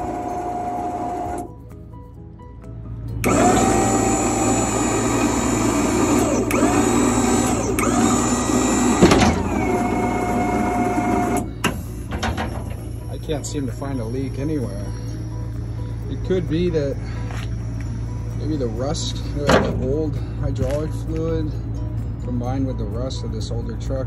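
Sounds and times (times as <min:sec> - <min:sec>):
hydraulic pump motor whining: 0:00.0 - 0:01.5, 0:03.2 - 0:15.0
liftgate clunk: 0:08.9 - 0:09.9, 0:11.2 - 0:13.0, 0:19.4 - 0:20.0.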